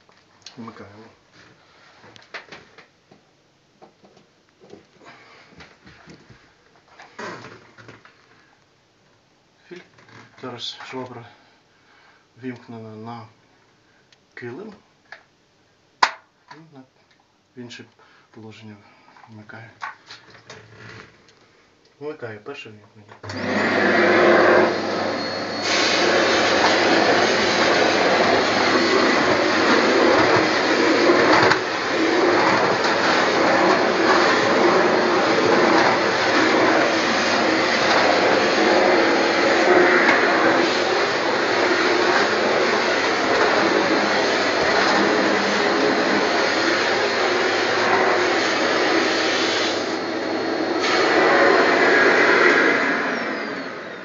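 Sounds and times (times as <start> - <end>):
vacuum cleaner on carpet: 23.2 - 54.0.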